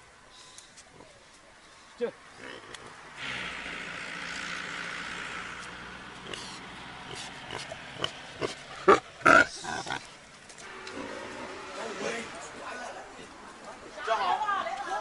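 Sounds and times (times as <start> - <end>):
pig grunting: 2.3 - 5.4, 6.1 - 10.2.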